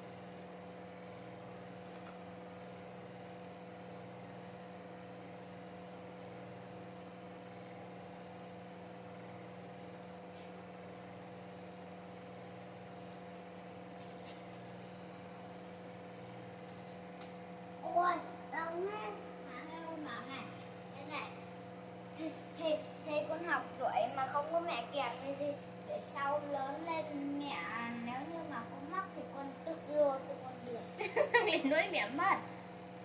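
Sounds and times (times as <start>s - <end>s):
steady electrical hum: 0.0s - 33.0s.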